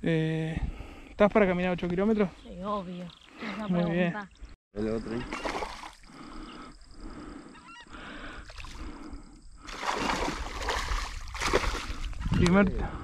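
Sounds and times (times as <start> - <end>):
faint bird calls: 5.1 - 9.3
water splashing: 5.2 - 6.1, 9.6 - 12.4.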